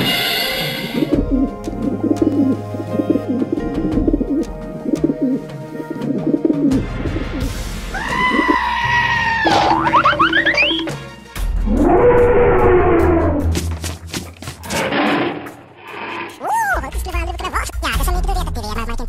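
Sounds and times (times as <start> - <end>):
soundtrack music: 0.0 - 14.1.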